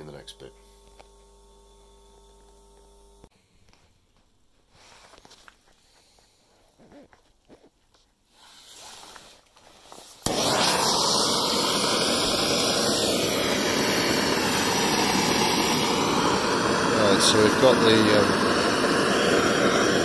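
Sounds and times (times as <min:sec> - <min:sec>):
gas torch flame rushing: 0:08.3 - 0:20.0.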